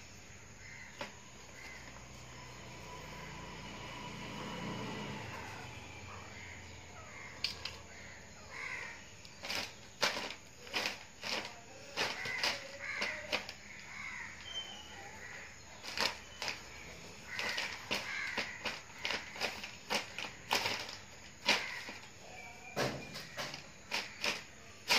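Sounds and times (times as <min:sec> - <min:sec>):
plastic bag crinkling: 0:09.2 - 0:24.9.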